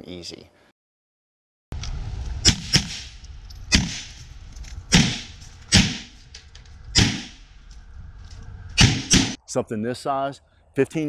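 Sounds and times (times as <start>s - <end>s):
pistol shots with echo: 7.0s - 7.4s.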